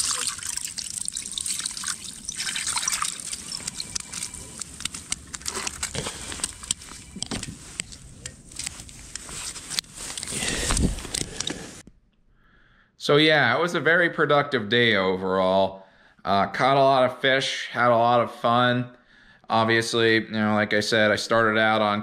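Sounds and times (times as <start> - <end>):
water sloshing and trickling: 0.0 - 5.8.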